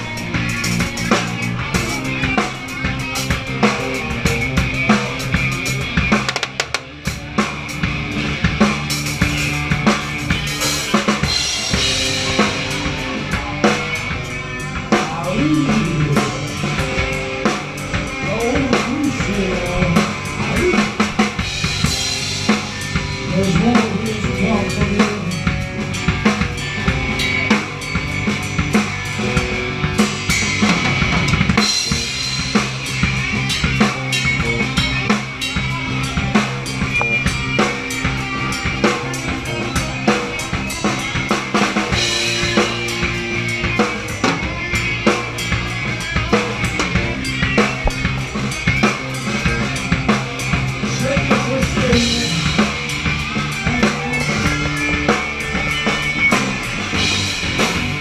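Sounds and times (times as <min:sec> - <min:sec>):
drum kit beat: 0:00.0 - 0:58.0
rock band playing: 0:00.0 - 0:58.0.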